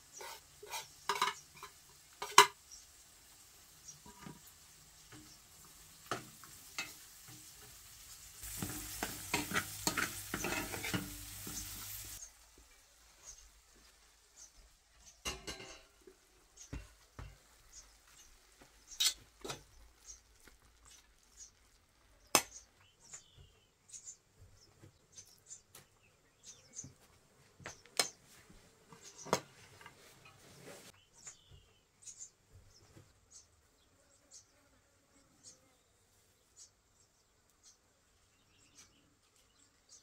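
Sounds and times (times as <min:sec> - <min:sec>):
metal spoon scraping a pot: 0:00.1 - 0:02.6, 0:08.4 - 0:12.2, 0:18.9 - 0:19.6.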